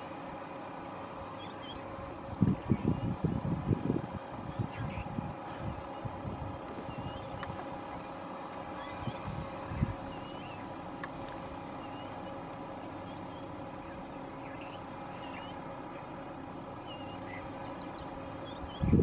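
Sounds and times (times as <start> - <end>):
vehicle engine idling: 0.0 - 19.0
bird chirps: 1.3 - 1.9, 6.8 - 10.8, 11.6 - 16.2, 16.8 - 19.0.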